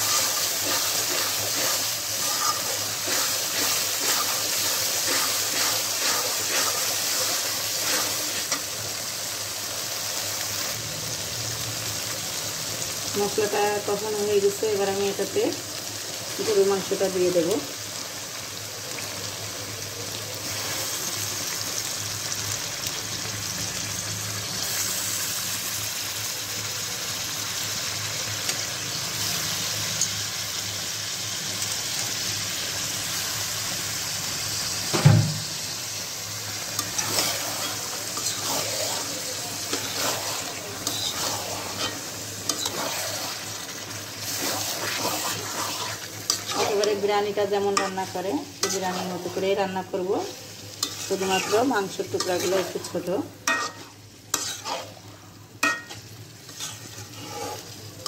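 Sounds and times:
metal spatula scraping a pan: 0:00.0 - 0:08.7, 0:36.7 - 0:57.8
meat sizzling in hot oil: 0:00.0 - 0:58.0.

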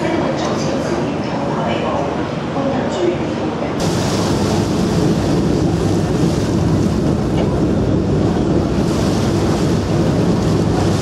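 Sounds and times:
water rushing along hull: 0:00.0 - 0:11.0
ferry engine low rumble: 0:03.8 - 0:11.0
wind buffeting microphone: 0:03.8 - 0:11.0.

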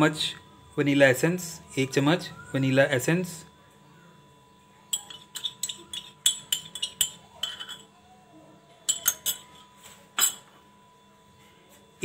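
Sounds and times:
spoon clinking against bowl: 0:04.9 - 0:07.9, 0:08.8 - 0:10.6.

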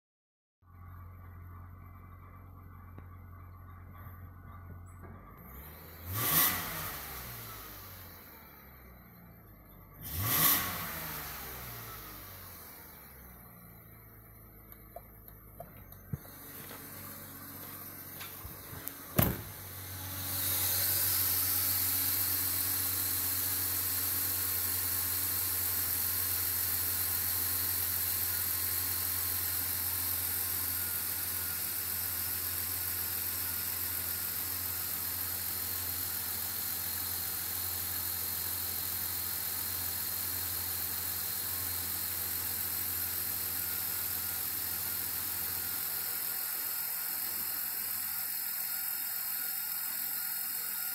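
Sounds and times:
car engine idling: 0:10.9 - 0:50.8
sharp knock: 0:19.2 - 0:19.6.

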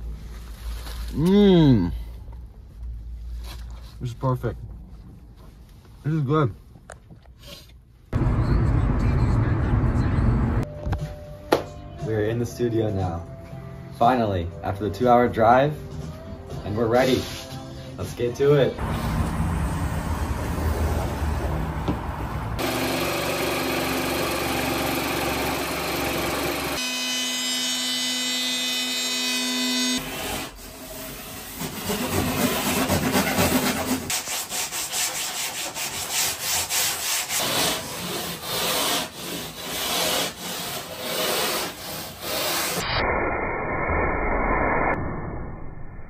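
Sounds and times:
sawing and rubbing on foam: 0:29.9 - 0:42.8
sandpaper sanding by hand: 0:30.6 - 0:42.8.

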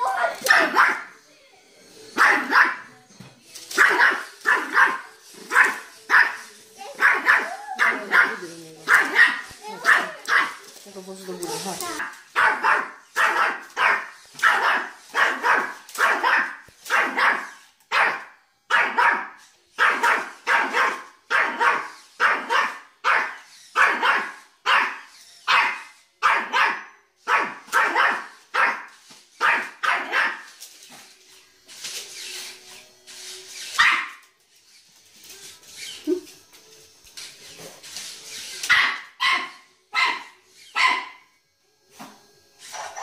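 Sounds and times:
small dog barking: 0:00.1 - 0:01.1, 0:02.2 - 0:02.9, 0:03.8 - 0:10.6, 0:11.9 - 0:30.5, 0:33.8 - 0:34.2, 0:38.7 - 0:41.2.

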